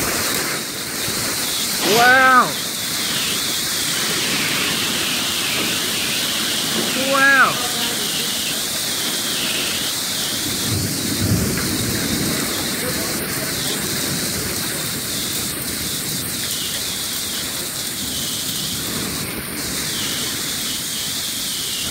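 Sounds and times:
heavy rain and hail: 0.0s - 21.9s
low rumble of thunder: 10.3s - 16.5s.

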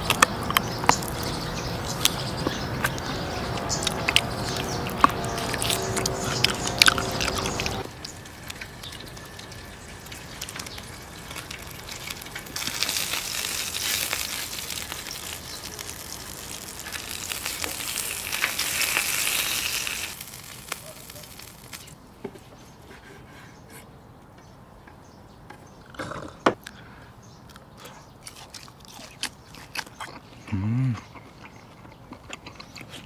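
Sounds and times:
metal tongs turning meat: 0.0s - 22.0s
person chewing: 0.0s - 22.0s, 27.5s - 33.0s
steak sizzling on griddle: 8.0s - 22.0s.

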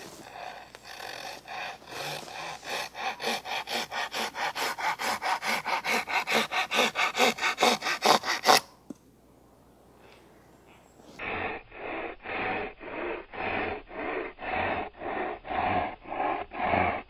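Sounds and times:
hand saw cutting wood: 0.0s - 8.8s.

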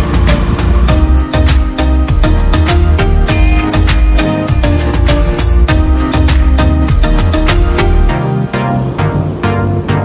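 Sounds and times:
music with heavy bass beat: 0.0s - 10.0s.

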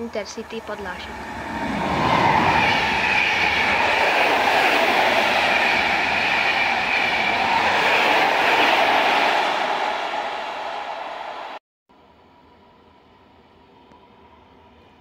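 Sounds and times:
high whine of locomotive: 0.0s - 15.0s
train wheels rushing on rail: 0.2s - 11.6s.

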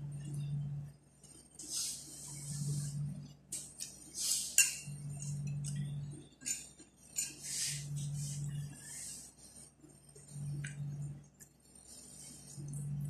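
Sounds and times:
spoon clinking against plate: 4.5s - 5.8s, 6.4s - 7.5s.

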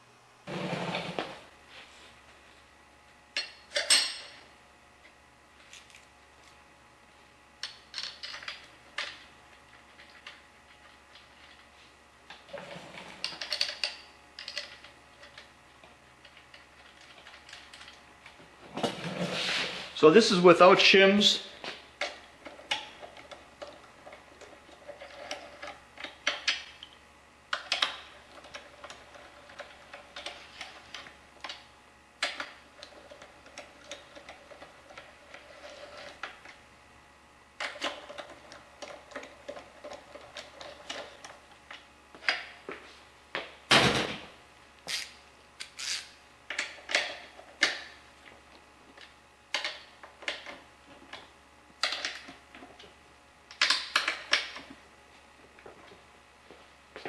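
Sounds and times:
ratchet wrench clicking: 44.9s - 46.1s.

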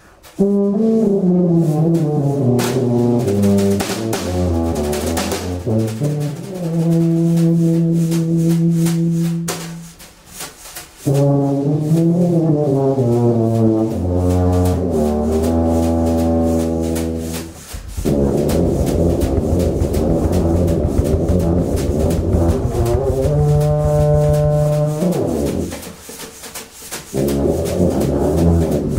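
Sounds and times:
tuba playing held notes: 0.2s - 10.0s, 11.0s - 25.9s, 27.1s - 28.9s
tenor saxophone playing: 11.1s - 19.7s.

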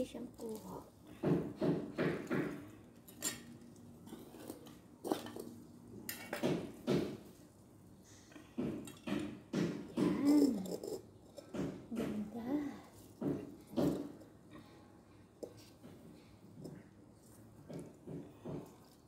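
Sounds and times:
trowel scraping ceramic pot: 10.0s - 11.6s.

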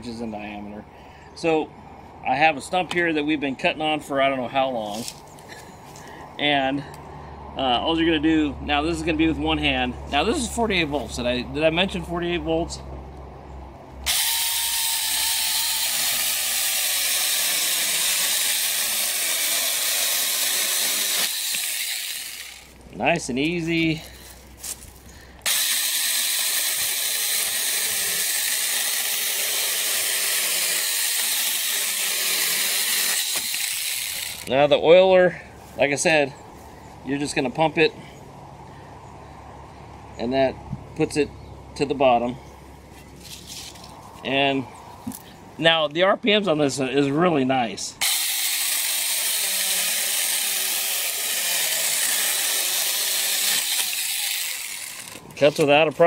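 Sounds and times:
chainsaw cutting through branch: 14.0s - 22.8s, 25.4s - 34.5s, 48.0s - 55.7s.

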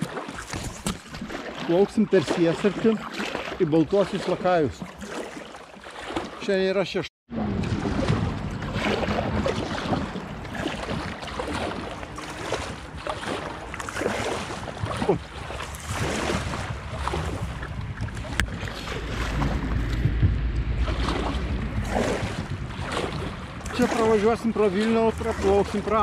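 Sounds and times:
paddle splashing in water: 0.0s - 26.0s
wind buffeting microphone: 7.3s - 26.0s.

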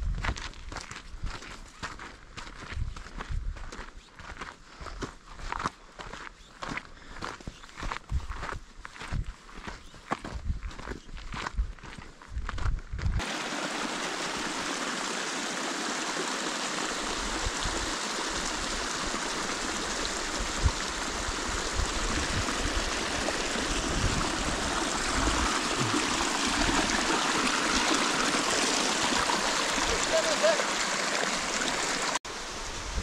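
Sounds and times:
stream rushing over rocks: 13.2s - 33.0s.

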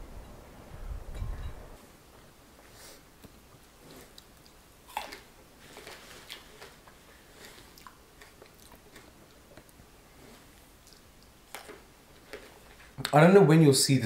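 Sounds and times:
person chewing crunchy food: 3.7s - 13.0s.

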